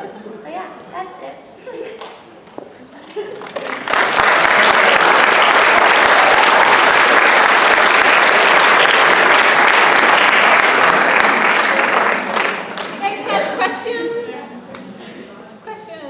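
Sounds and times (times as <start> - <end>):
audience applauding: 3.3 - 13.4.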